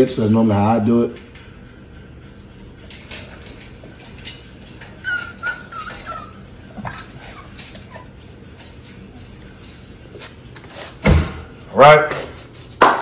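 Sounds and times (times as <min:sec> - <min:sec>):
puppy whining: 0:04.3 - 0:09.2.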